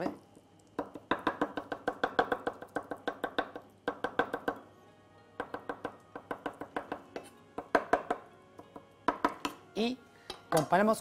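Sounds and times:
knife chopping on wooden board: 0.8s - 4.6s, 5.4s - 9.6s.

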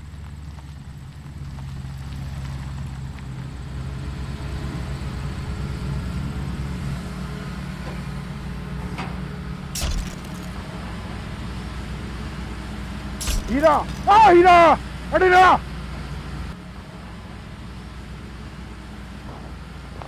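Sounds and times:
vehicle engine running: 0.0s - 20.0s
sharp impact: 9.8s - 10.6s, 13.2s - 14.3s.

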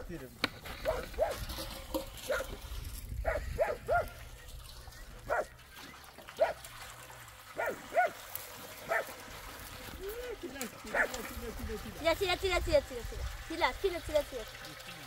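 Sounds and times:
dog barking: 0.8s - 1.4s, 2.3s - 2.5s, 3.2s - 4.2s, 5.3s - 5.5s, 6.4s - 6.6s, 7.6s - 8.2s, 8.9s - 9.1s, 10.9s - 11.2s.

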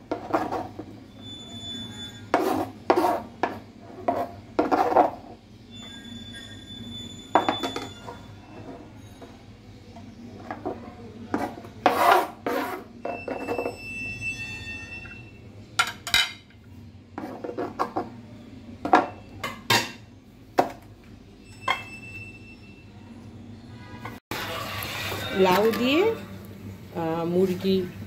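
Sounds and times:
knife scraping cutting board: 2.2s - 5.3s, 11.3s - 13.7s.

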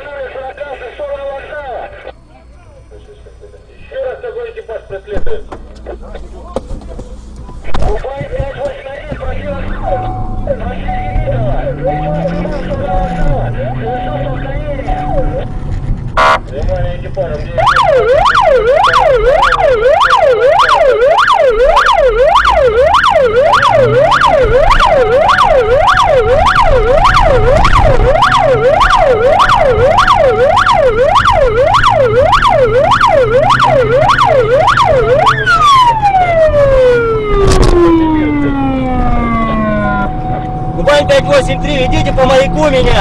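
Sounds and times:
police siren yelping: 7.7s - 15.6s, 17.5s - 43.0s.

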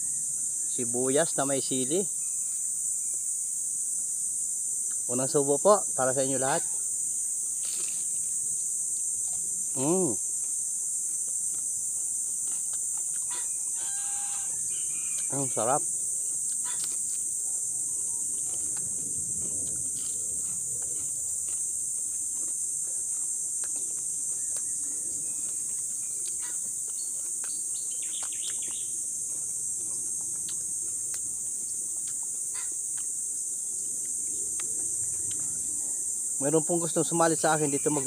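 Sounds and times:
insects droning: 0.0s - 38.0s
bird chirps: 24.3s - 29.0s.

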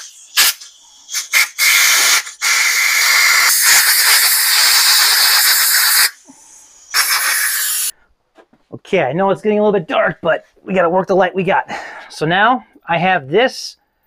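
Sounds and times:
compressed air hissing: 0.0s - 8.0s.

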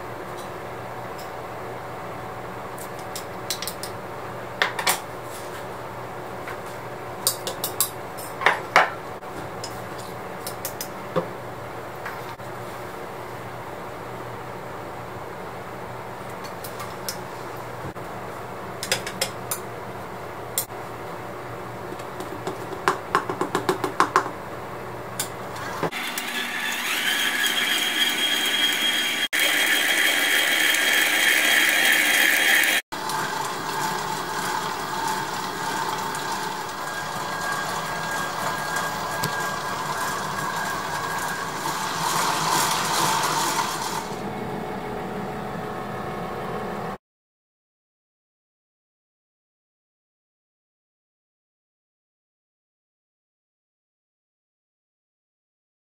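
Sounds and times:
stand mixer whining: 25.6s - 46.1s.

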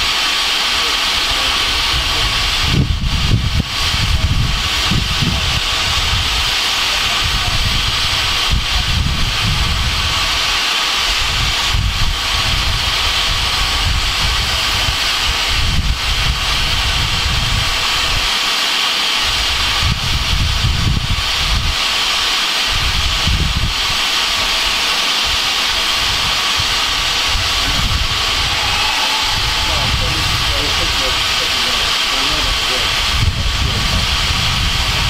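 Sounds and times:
steam hissing: 0.0s - 35.0s
low rumble: 27.4s - 31.4s.

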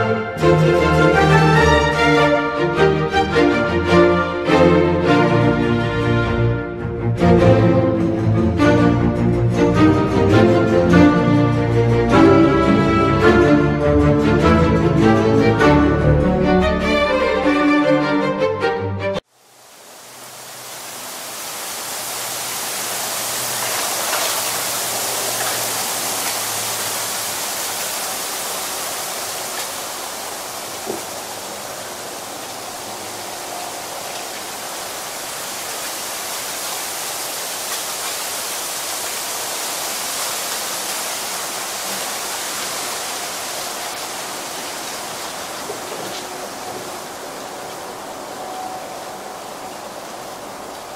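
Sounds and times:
wind rustling bamboo leaves: 19.2s - 50.9s.

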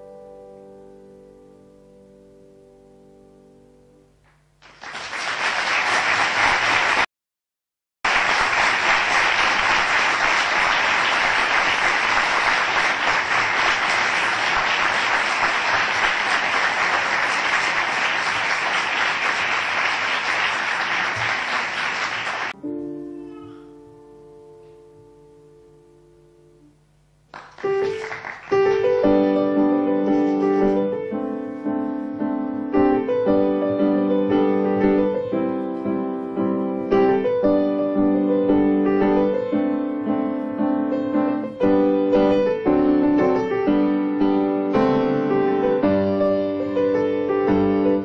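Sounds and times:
audience applauding: 4.6s - 7.1s, 8.0s - 22.6s, 27.3s - 29.0s
grand piano notes: 27.4s - 48.0s.

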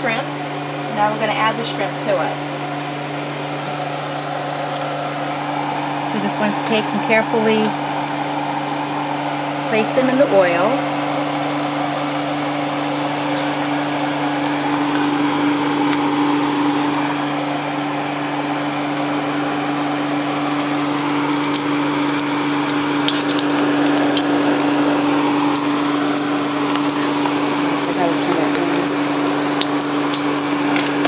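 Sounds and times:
low hum: 0.0s - 31.0s
oil crackles and pops: 2.8s - 5.0s, 11.1s - 31.0s
shrimp frying in hot oil: 11.1s - 31.0s.

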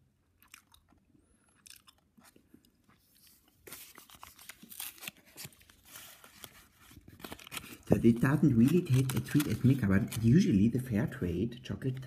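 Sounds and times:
paper wrapper crinkling: 3.0s - 10.9s.

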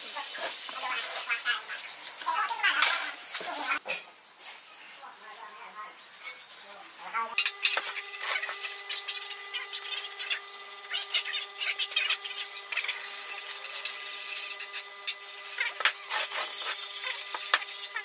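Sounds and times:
steady hum: 7.1s - 18.0s.

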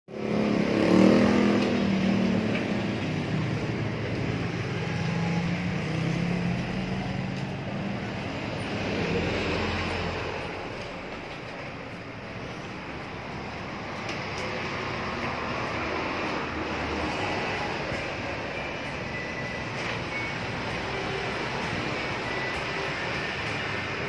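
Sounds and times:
vehicle engine and traffic noise: 0.1s - 24.0s.

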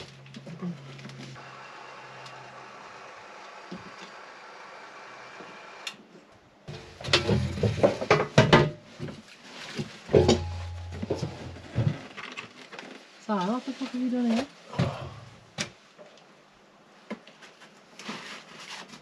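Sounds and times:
timber and tools clunking: 9.8s - 12.3s.

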